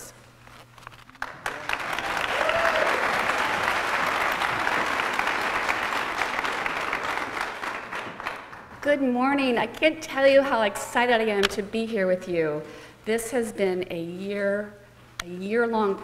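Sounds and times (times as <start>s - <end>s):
audience applauding: 1.1s - 8.8s.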